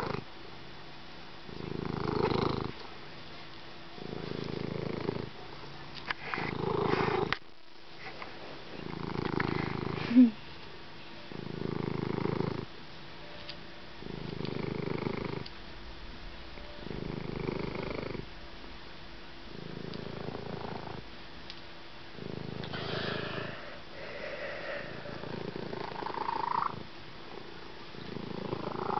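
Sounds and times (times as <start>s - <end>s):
rhythmic low rumbling: 13.8s - 22.9s.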